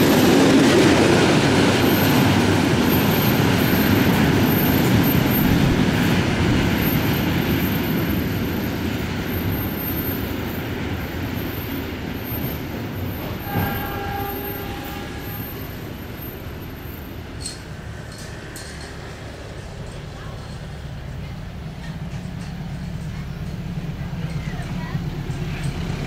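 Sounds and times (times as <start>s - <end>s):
train wheels rumbling on rail: 0.0s - 26.0s
train horn: 13.4s - 15.8s.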